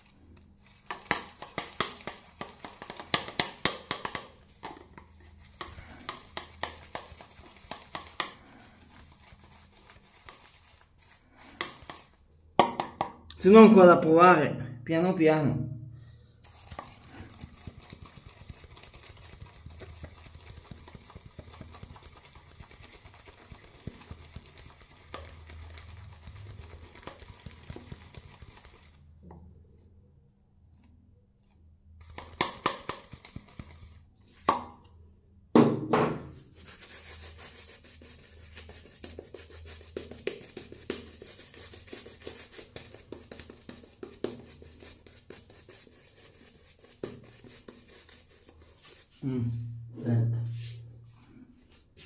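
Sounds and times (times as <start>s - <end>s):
brush scrubbing stubbly face: 0.0s - 12.4s, 16.4s - 29.2s, 32.0s - 34.5s, 36.4s - 49.2s
shaving brush swishing: 5.2s - 12.2s.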